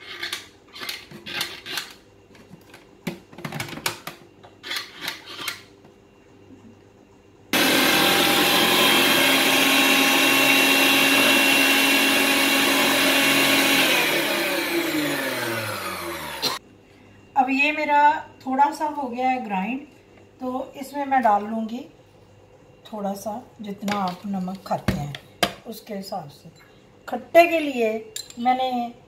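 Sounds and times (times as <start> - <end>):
food processor motor grinding: 7.6 - 16.6
motor spinning down: 7.6 - 16.6.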